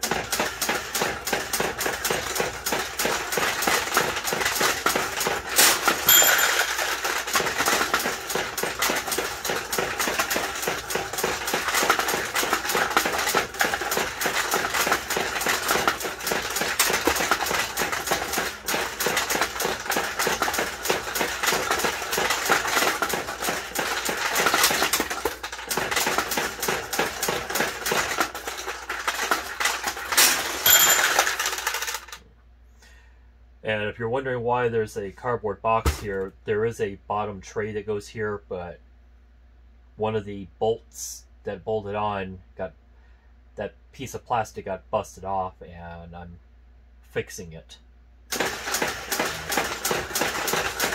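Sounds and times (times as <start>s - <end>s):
steel balls rattling: 0.0s - 32.2s
pachinko bell ringing: 6.0s - 7.0s, 30.5s - 31.9s.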